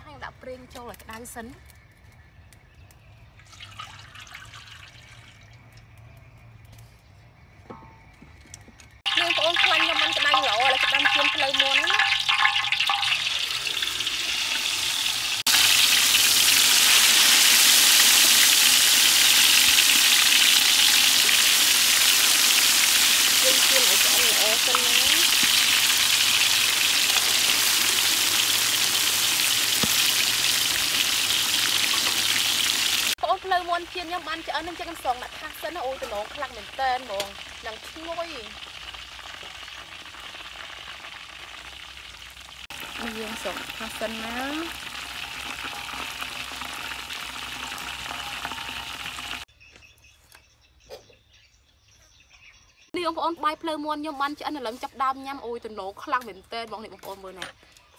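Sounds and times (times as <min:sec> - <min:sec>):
chicken sizzling in hot oil: 0:09.0 - 0:49.5.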